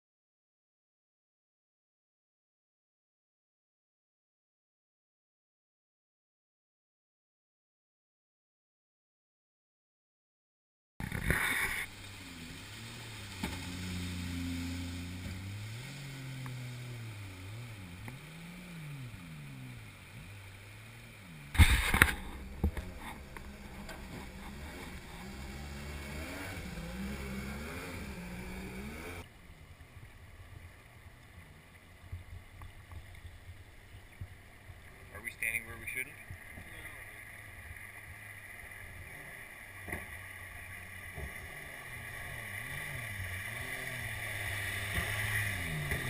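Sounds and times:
boat engine running: 11.0 - 46.0
flowing water: 11.0 - 46.0
loud thump: 21.5 - 23.0.

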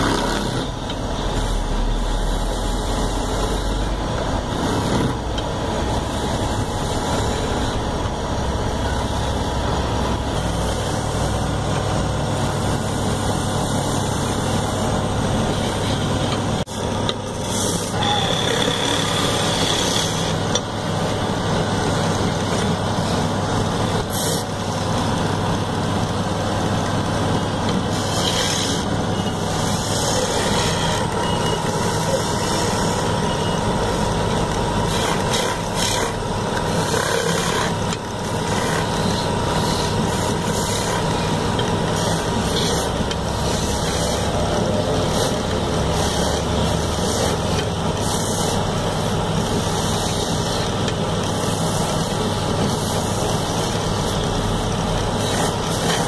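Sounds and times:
chisel scraping spinning wood: 17.4 - 20.4, 27.9 - 28.9.

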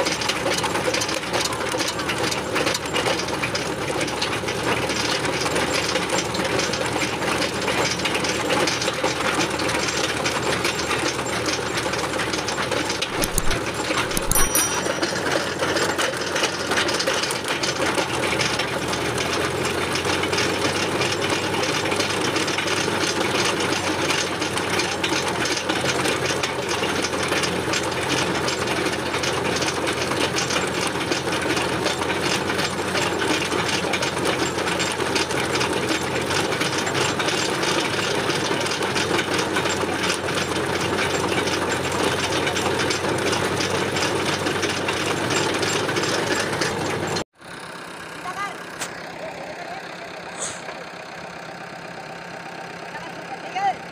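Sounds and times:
earth auger boring soil: 0.0 - 53.9.

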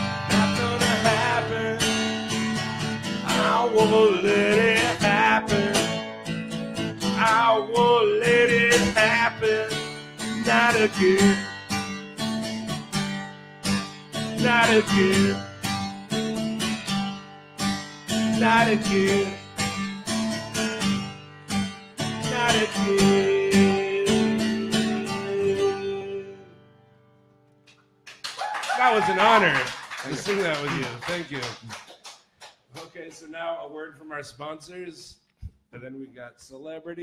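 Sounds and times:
man singing: 0.0 - 2.2, 3.2 - 6.1, 7.1 - 11.5, 14.3 - 15.5, 18.3 - 19.5, 22.0 - 26.5
acoustic guitar strumming: 0.0 - 27.7.

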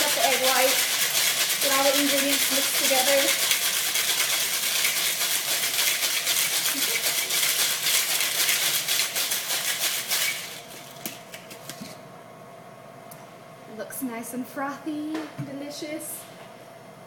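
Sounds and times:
ice rattling in cocktail shaker: 0.0 - 11.2.

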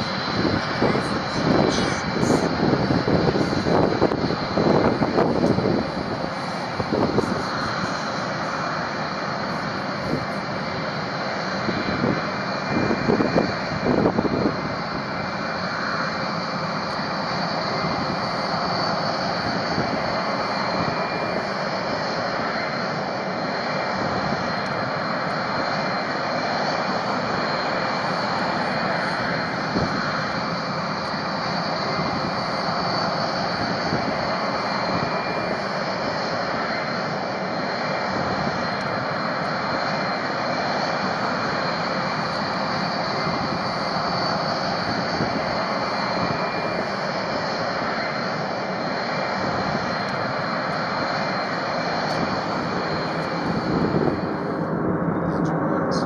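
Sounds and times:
jet engines rumbling with turbine whine: 0.0 - 56.0.

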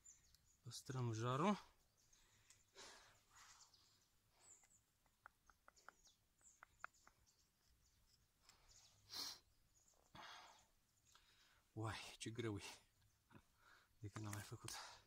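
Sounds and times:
light wooden clicks and taps: 4.6 - 7.7, 14.1 - 14.8.

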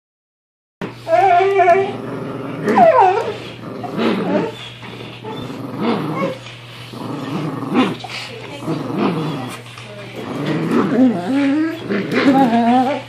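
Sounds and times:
dogs growling in play: 0.8 - 13.0
dog whining: 0.9 - 6.5, 9.0 - 9.6, 10.3 - 13.0.

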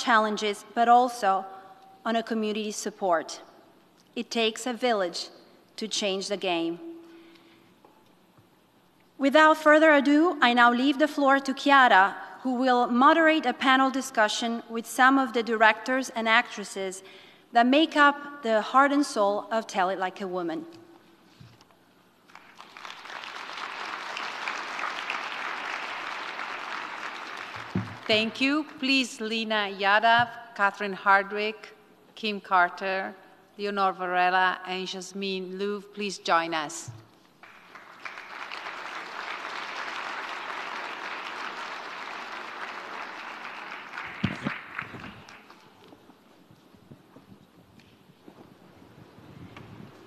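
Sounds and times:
audience applauding: 22.3 - 28.1, 37.4 - 45.7.

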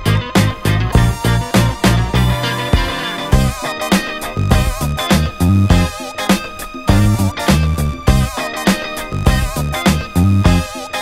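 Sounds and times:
bass line: 0.0 - 3.7, 4.3 - 5.9, 6.9 - 8.4, 9.1 - 10.7
drum hits: 0.4 - 8.3.

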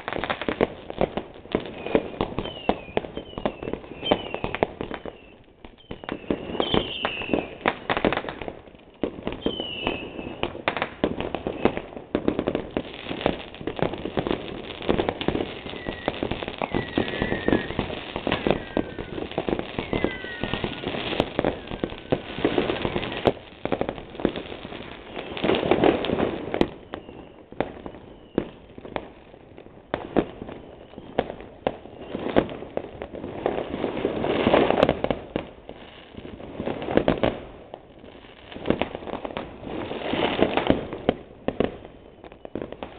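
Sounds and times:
firework bangs and crackling: 0.0 - 42.9
whistles falling in pitch: 1.8 - 4.4, 15.6 - 22.2.

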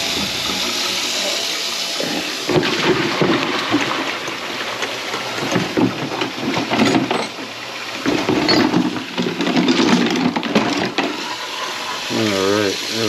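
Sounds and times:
water running into a sink: 0.0 - 13.0
knocks and handling noises: 2.5 - 11.2.

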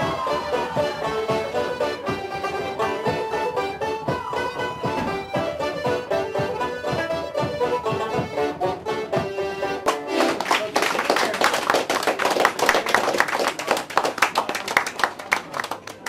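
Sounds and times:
folk dance tune accordion and banjos: 0.0 - 12.6
applause: 9.9 - 16.0.

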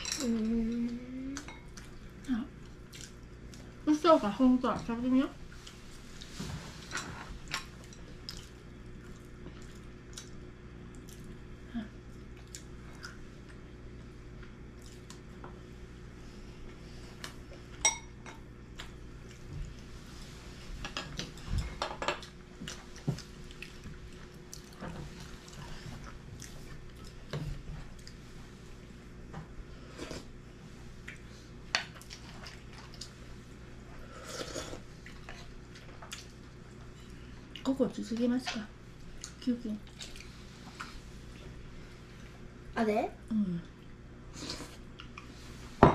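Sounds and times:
chopsticks and bowls clinking: 0.0 - 1.8
steady low hum: 0.0 - 45.9.

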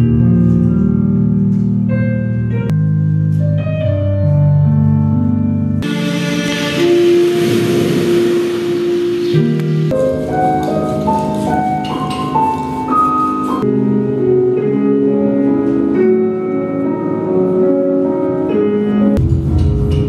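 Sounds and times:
instrumental melody: 0.0 - 20.0
music beat: 5.8 - 13.7, 19.2 - 20.0.

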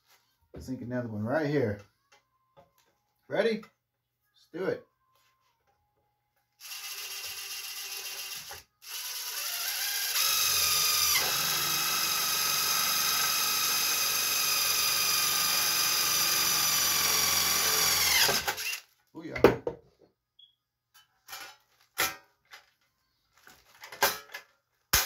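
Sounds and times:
cordless drill whine: 6.6 - 18.8.

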